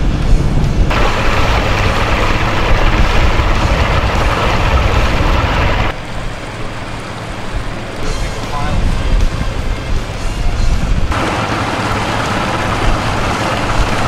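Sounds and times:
water rushing from wake: 0.1 - 14.0
outboard motor running: 0.9 - 14.0.

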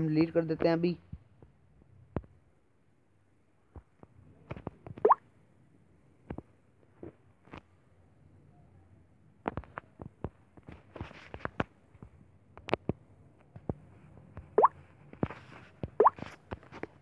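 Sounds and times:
fingers tapping touchscreen: 14.4 - 14.8.

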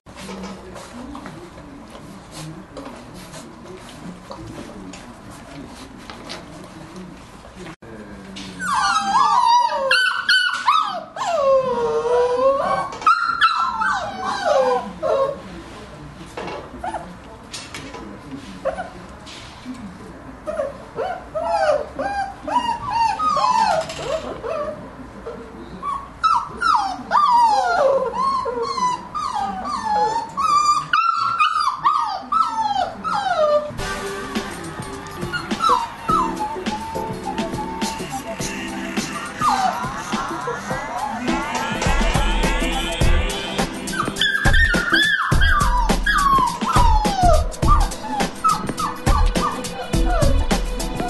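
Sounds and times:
puppies whining and yelping: 8.5 - 15.4, 20.5 - 24.8, 25.8 - 33.8, 35.2 - 43.1, 43.7 - 51.0.

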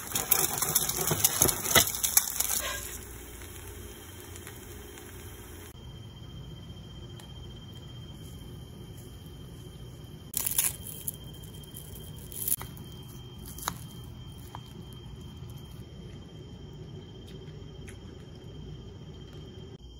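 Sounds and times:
dried seaweed crackling: 0.0 - 5.3, 10.3 - 15.8
low background hum: 0.0 - 19.9.

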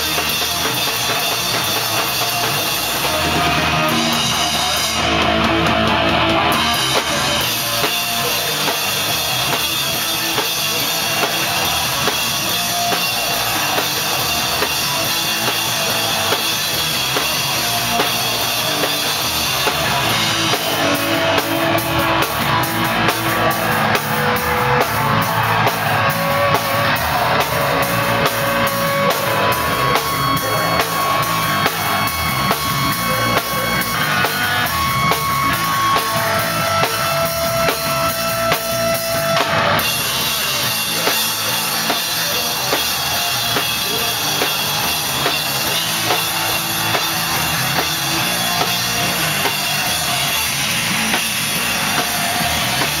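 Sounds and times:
distorted guitar: 0.0 - 53.0
fast driving drums: 0.0 - 53.0
metal band playing live: 0.0 - 53.0.

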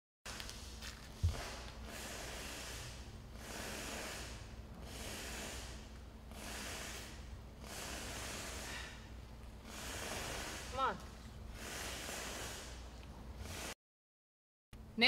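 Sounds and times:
person breathing heavily: 1.3 - 12.8.

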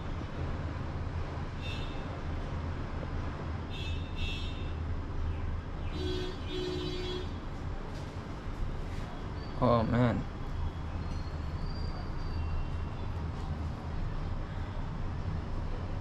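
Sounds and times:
street traffic rumble: 0.0 - 16.0
low vehicle horn: 5.9 - 7.4.

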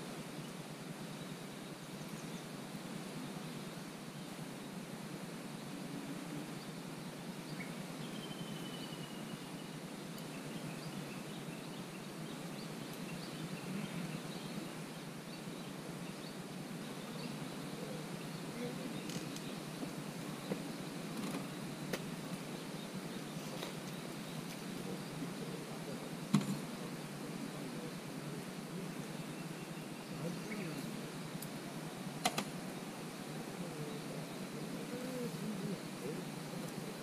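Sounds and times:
steady background hiss: 0.0 - 37.0
bird call: 7.6 - 9.4.

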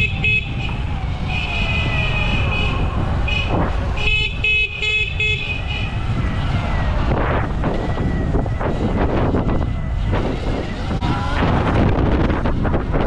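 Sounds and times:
vehicle horn beeping: 0.0 - 6.0
road noise: 0.0 - 13.0
wind noise: 0.0 - 13.0.

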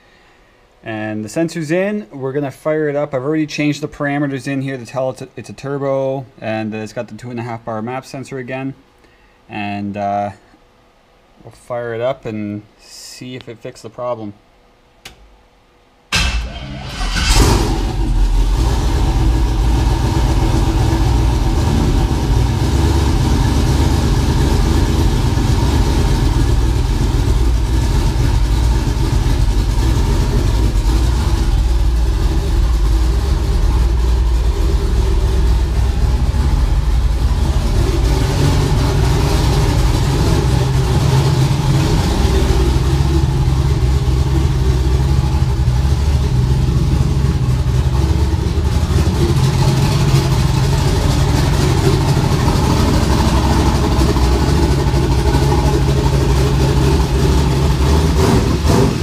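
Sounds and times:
car engine idling: 16.1 - 59.0.

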